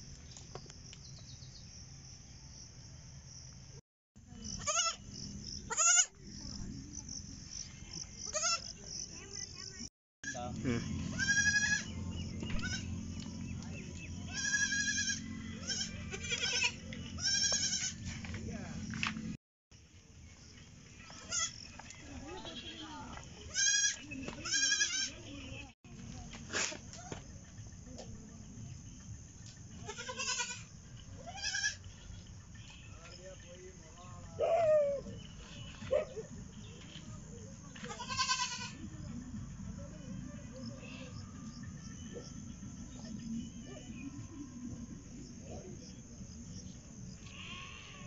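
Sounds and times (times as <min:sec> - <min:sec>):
goat kid bleating: 0:04.6 - 0:05.0, 0:05.7 - 0:06.1, 0:08.3 - 0:08.7, 0:10.2 - 0:11.9, 0:12.5 - 0:12.9, 0:14.3 - 0:18.0, 0:21.1 - 0:21.6, 0:22.3 - 0:22.9, 0:23.5 - 0:25.2, 0:29.8 - 0:32.9, 0:37.8 - 0:38.8, 0:47.2 - 0:48.0.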